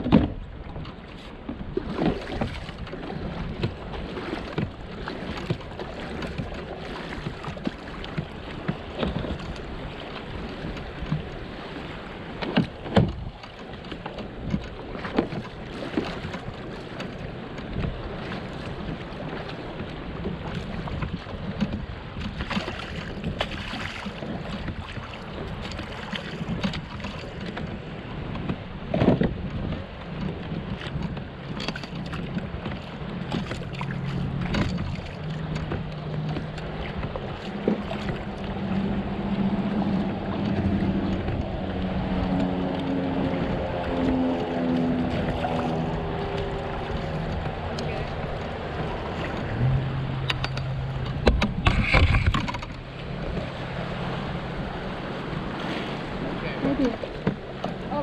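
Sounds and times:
water lapping against hull: 0.0s - 58.0s
wind on microphone: 0.0s - 58.0s.

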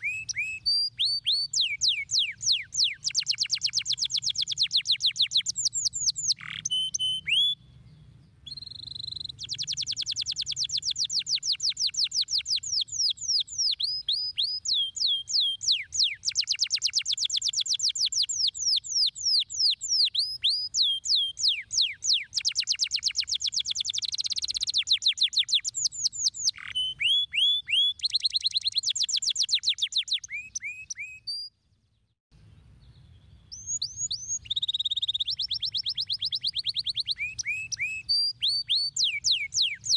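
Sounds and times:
canary singing trills: 0.0s - 31.5s, 32.8s - 39.9s.

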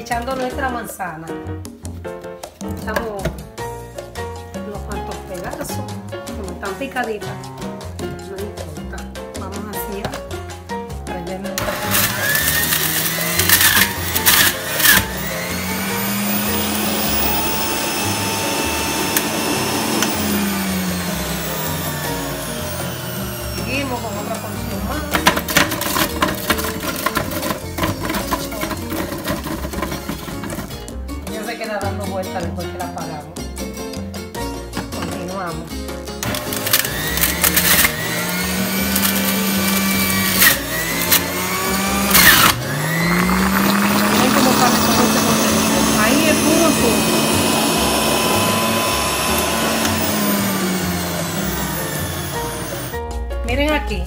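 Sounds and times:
juicer motor humming: 11.6s - 31.0s, 36.2s - 53.0s.

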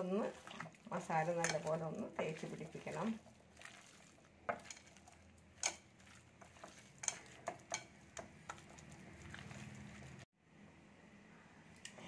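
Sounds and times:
wet squelching of paste: 0.0s - 10.3s.

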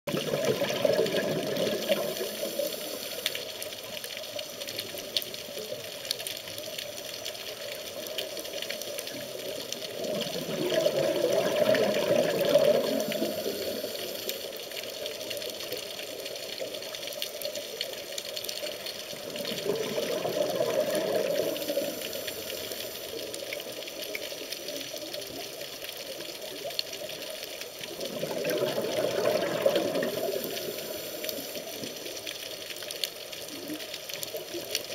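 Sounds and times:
bubbling exhaled air: 0.1s - 3.5s, 9.9s - 14.4s, 19.0s - 23.3s, 27.9s - 32.0s
regulator hiss: 1.7s - 3.9s, 12.7s - 14.7s, 21.4s - 23.5s, 30.2s - 32.2s.

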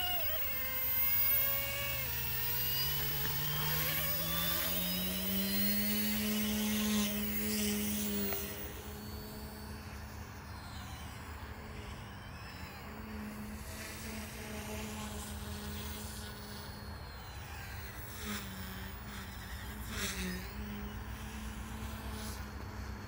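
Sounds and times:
rc helicopter rotor hum: 0.0s - 23.0s.

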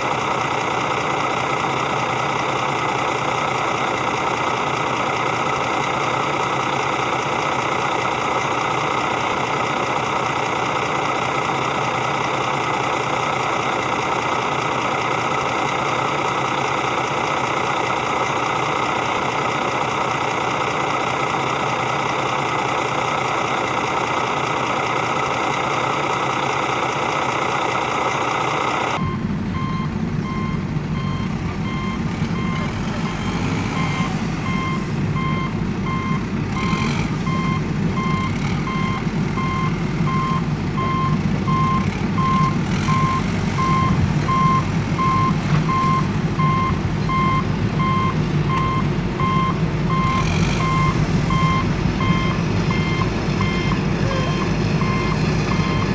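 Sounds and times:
engine sound: 0.0s - 55.9s
truck engine running: 0.0s - 55.9s
reversing alarm beeping: 29.0s - 55.9s.

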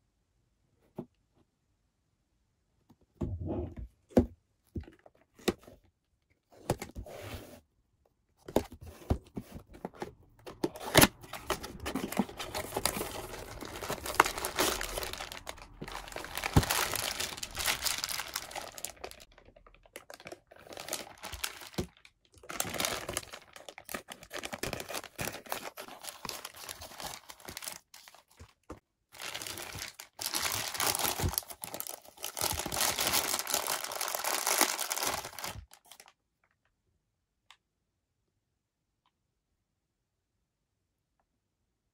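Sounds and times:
plastic bags crinkling and tearing: 10.2s - 28.5s, 29.2s - 36.1s.

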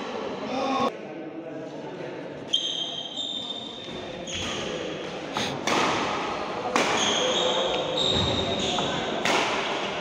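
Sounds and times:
shoes squeaking on floor: 2.5s - 4.8s, 6.9s - 9.1s
rackets smacking shuttlecock: 5.6s - 10.0s.

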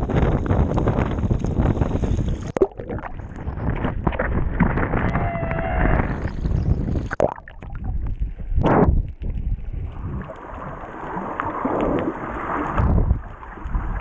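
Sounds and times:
muffled underwater gurgling: 0.0s - 14.0s
wind buffeting microphone: 0.0s - 14.0s
sea waves splashing: 9.9s - 14.0s.

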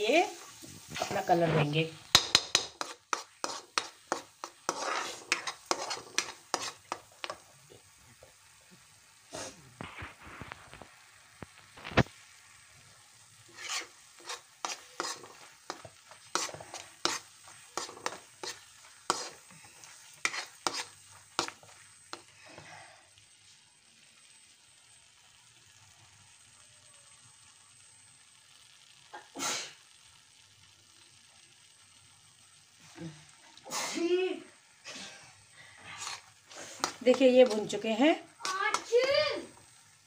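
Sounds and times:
paste frying in oil: 0.0s - 40.0s
steel spatula scraping a pan: 0.3s - 7.5s, 13.4s - 22.3s, 34.9s - 39.6s.

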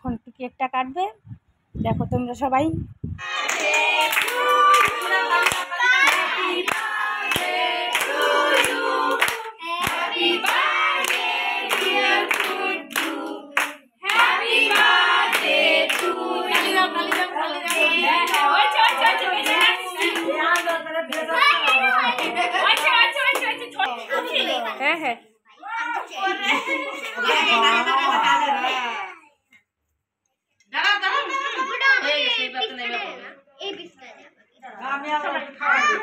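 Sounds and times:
children singing: 3.2s - 21.8s
hands clapping: 3.2s - 23.8s.

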